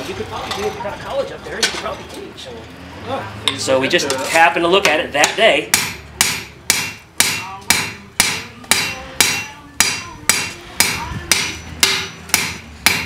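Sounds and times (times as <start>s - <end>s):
hammer striking punch on metal: 4.8s - 13.0s.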